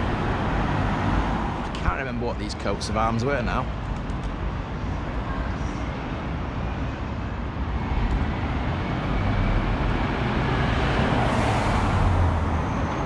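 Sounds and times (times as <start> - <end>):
road traffic: 0.0 - 13.0
vehicle passing close by: 8.7 - 12.8.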